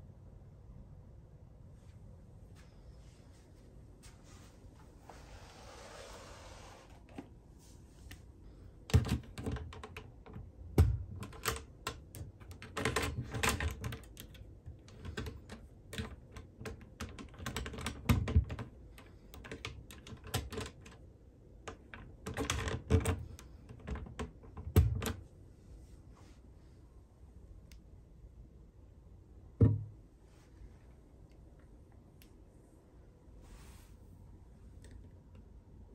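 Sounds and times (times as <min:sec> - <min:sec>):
combination lock clicking: 0:08.9 - 0:18.6.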